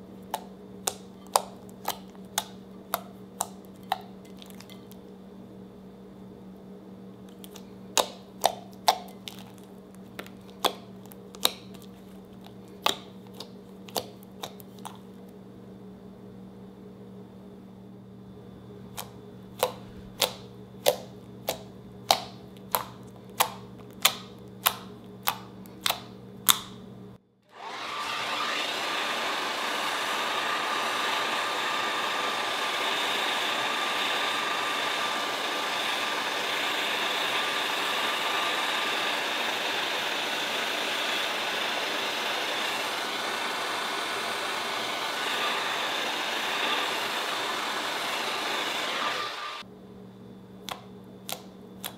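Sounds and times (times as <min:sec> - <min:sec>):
hair dryer blowing: 0:27.5 - 0:49.6.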